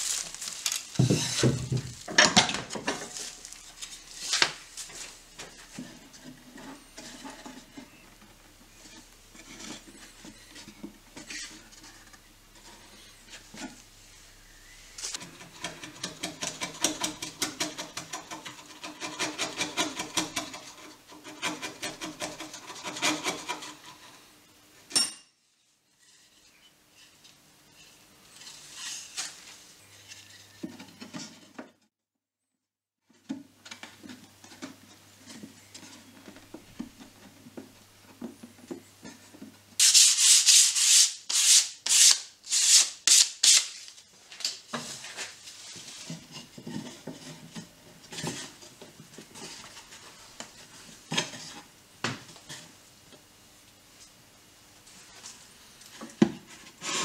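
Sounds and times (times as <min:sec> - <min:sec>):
rubbing and handling of wood: 0:00.0 - 0:24.4, 0:25.7 - 0:31.8, 0:33.1 - 0:53.0
sandpaper scratching on wood: 0:39.8 - 0:43.8.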